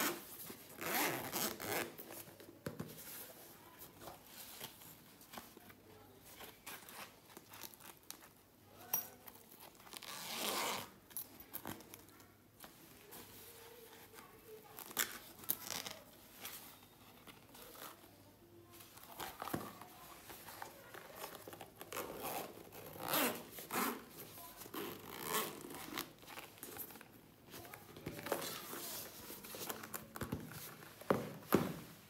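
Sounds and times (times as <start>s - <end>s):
zipper rasping pulls: 0.0s - 2.0s, 9.9s - 10.9s, 21.8s - 26.2s.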